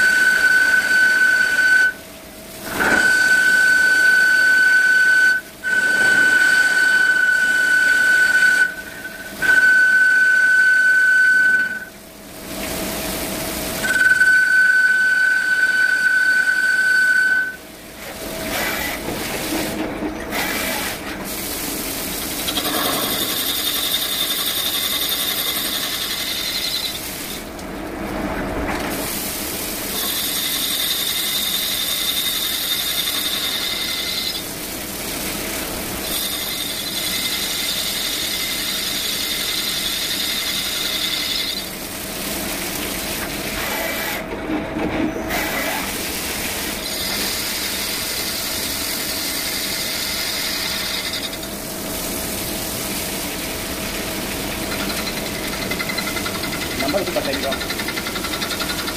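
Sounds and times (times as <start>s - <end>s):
lathe machining whine: 0.0s - 2.0s, 2.6s - 12.0s, 13.8s - 17.6s, 22.4s - 27.0s, 29.9s - 34.4s, 36.0s - 41.8s, 46.8s - 51.6s.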